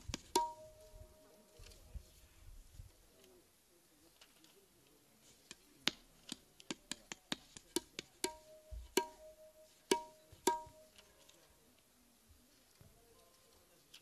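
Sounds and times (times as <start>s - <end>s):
hand drum strikes: 0.3s - 1.2s, 8.2s - 10.9s.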